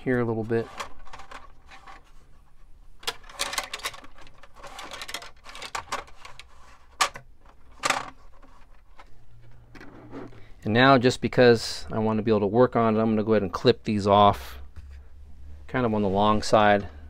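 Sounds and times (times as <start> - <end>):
scraping and rubbing: 0.4 - 10.5.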